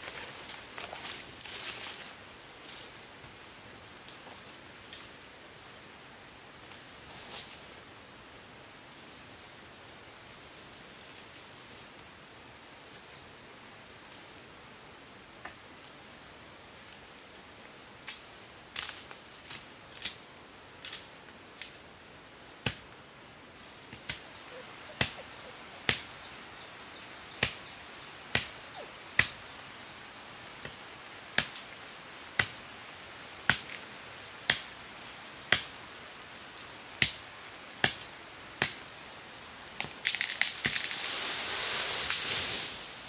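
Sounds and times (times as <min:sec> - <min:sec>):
machete chopping bamboo: 0:25.9 - 0:26.1, 0:28.3 - 0:28.6, 0:29.2 - 0:29.4, 0:33.5 - 0:33.8, 0:34.5 - 0:34.7, 0:35.5 - 0:35.7, 0:37.0 - 0:37.2, 0:37.8 - 0:38.8
stalk crashing through leaves: 0:39.7 - 0:43.0.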